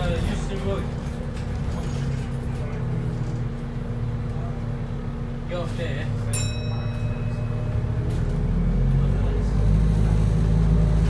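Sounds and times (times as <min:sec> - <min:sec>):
bus diesel engine drone: 0:00.0 - 0:11.0
bus stop-request bell ding: 0:06.2 - 0:08.2.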